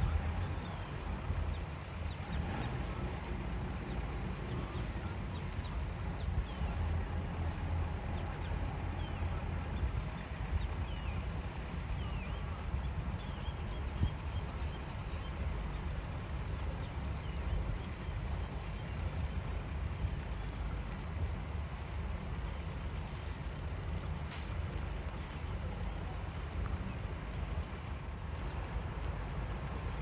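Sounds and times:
boat engine rumbling: 0.0s - 12.1s
birds chirping: 3.2s - 9.4s.

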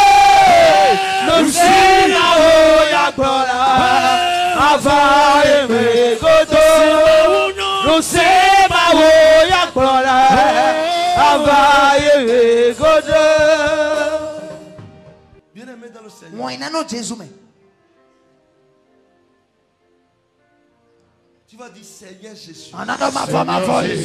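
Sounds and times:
voices singing worship chant: 0.0s - 14.9s, 22.7s - 24.0s.

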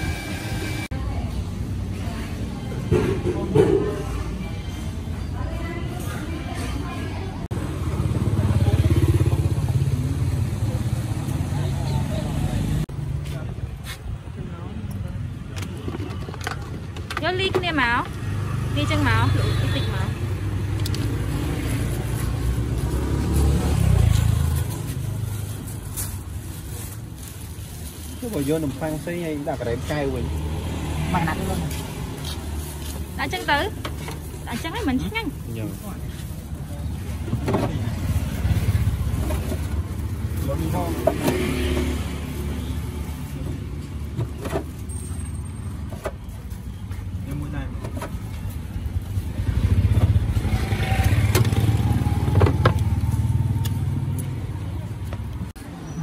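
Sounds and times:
motor vehicle passing: 7.5s - 13.4s, 17.8s - 25.6s, 29.2s - 44.1s, 49.0s - 55.1s.

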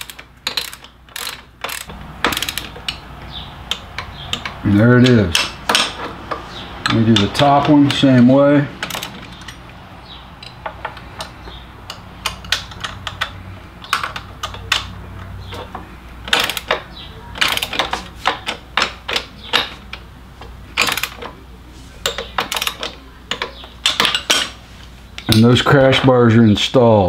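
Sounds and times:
ratchet wrench clicking: 0.0s - 6.0s, 8.8s - 9.6s, 10.4s - 19.7s, 20.8s - 21.2s, 22.0s - 24.5s.

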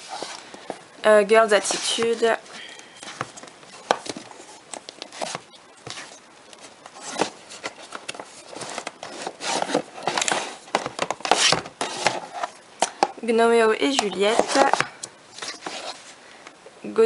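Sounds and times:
cases rubbing and sliding: 0.0s - 0.9s, 1.5s - 13.2s, 13.8s - 16.2s.

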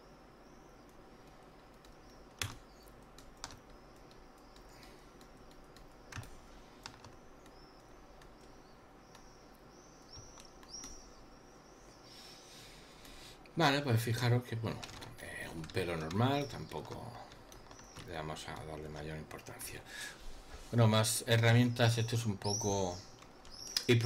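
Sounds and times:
faint steady hiss: 0.0s - 24.0s.

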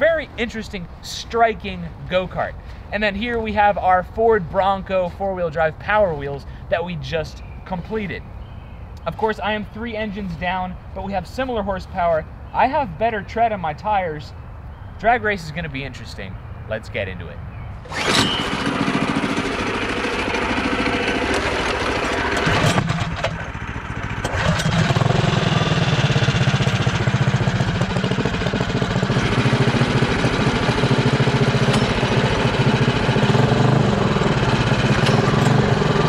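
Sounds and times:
go-kart engines running: 17.9s - 36.0s.

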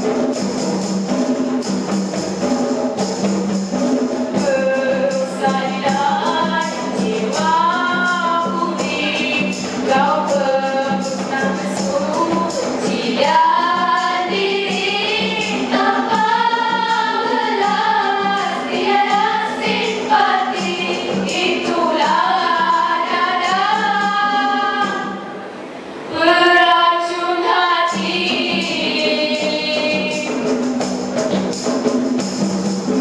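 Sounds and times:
girls singing in harmony: 4.3s - 30.6s.

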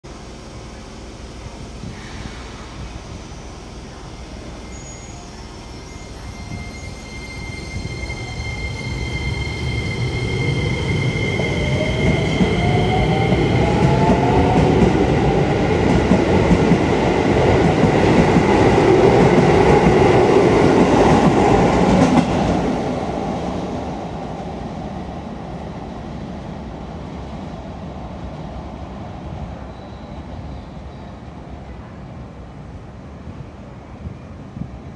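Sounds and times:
train wheels clattering on rail: 11.6s - 23.0s.

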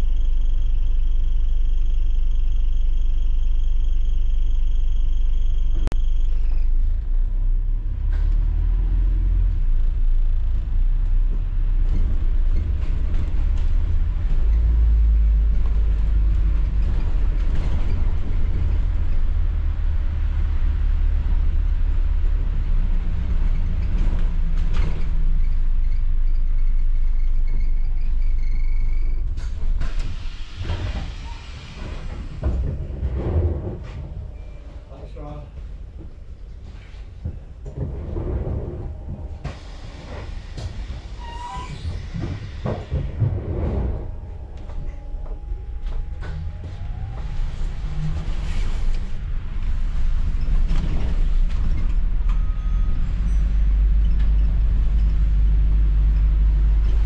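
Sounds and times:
bus engine and road rumble: 0.0s - 57.0s
bus brakes hissing: 29.4s - 32.5s, 39.4s - 43.1s.

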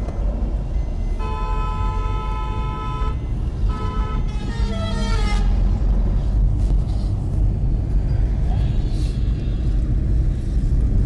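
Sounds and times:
road rumble inside moving car: 0.0s - 11.0s
vehicle horn honking: 1.2s - 5.5s.

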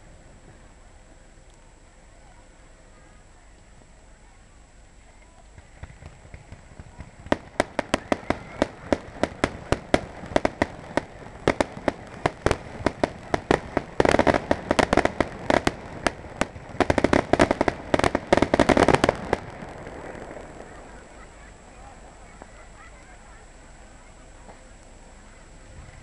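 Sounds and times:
fireworks bangs and crackling: 5.4s - 26.0s.

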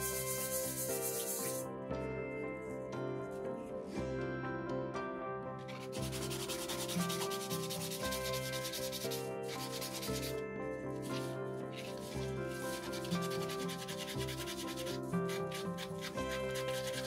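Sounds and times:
sandpaper rubbing on resin: 0.0s - 1.6s, 5.7s - 10.4s, 11.1s - 17.0s.

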